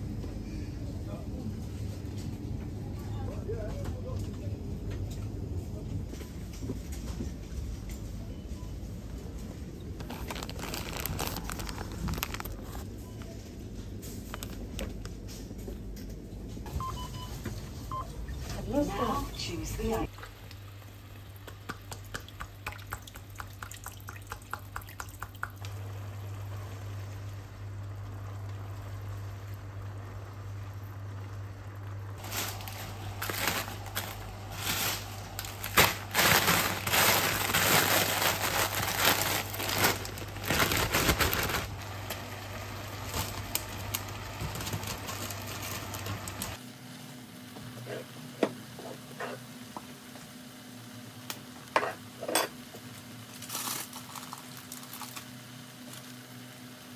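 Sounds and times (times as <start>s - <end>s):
steady low hum: 0.0s - 55.9s
plastic bag crinkling: 9.8s - 12.9s, 32.2s - 46.6s, 53.3s - 55.3s.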